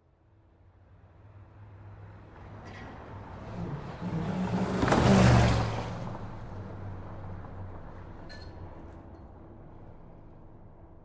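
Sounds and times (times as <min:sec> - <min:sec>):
car speeding past: 0:03.2 - 0:07.6.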